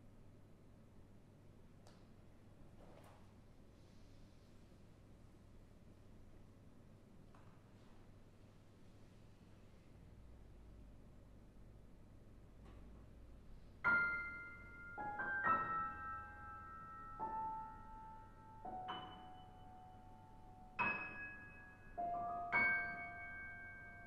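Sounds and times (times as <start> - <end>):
grand piano notes and chords: 12.7 - 24.0.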